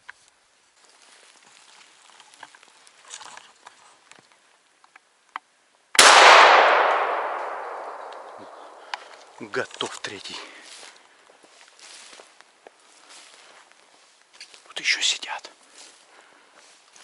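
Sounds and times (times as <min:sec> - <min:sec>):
shotgun shot: 0:06.0 - 0:09.3
faint rustles: 0:08.5 - 0:14.8.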